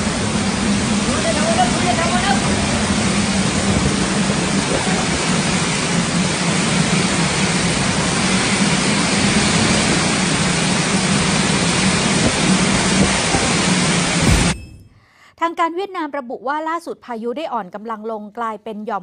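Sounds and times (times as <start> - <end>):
driving rain: 0.0 - 14.5
storm wind: 0.0 - 14.6.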